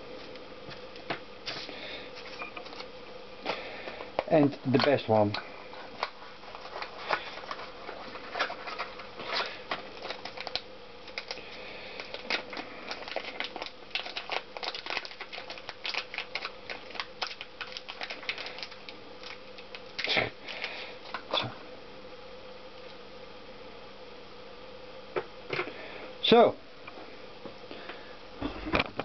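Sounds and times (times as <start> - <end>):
faint steady hum: 0.0 - 29.0
plastic bag crinkling: 5.7 - 21.3.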